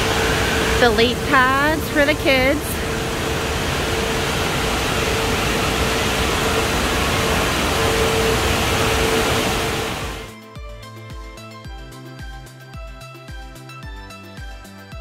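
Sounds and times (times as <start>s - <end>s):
background music with beat: 10.3s - 15.0s.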